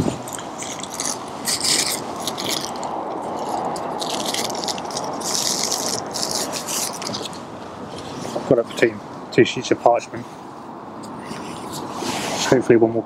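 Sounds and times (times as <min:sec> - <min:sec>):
parchment paper crinkling: 0:00.3 - 0:08.4.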